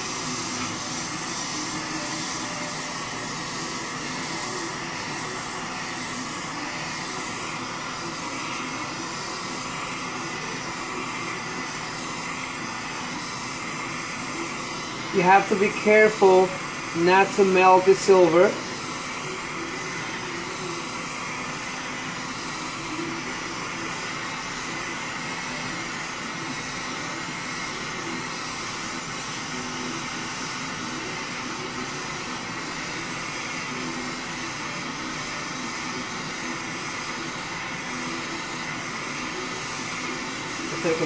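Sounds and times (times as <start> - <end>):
torch flame hissing: 0.0 - 41.0.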